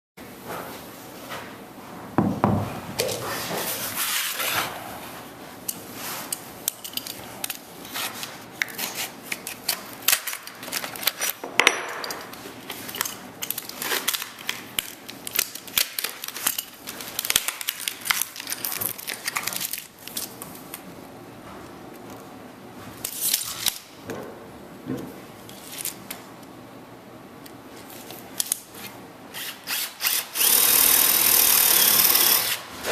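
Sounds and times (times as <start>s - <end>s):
small metal parts clinking: 6.7s - 7.2s
plastic packaging crackling: 13.5s - 20.3s.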